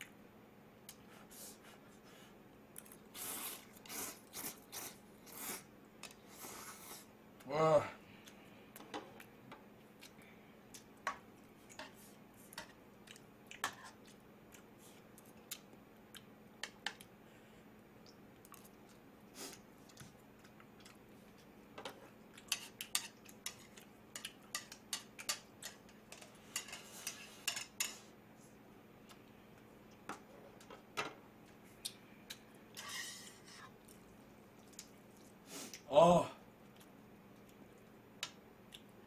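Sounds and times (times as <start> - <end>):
fork clinking and scraping plate: 22.5 - 28.0, 32.8 - 33.7.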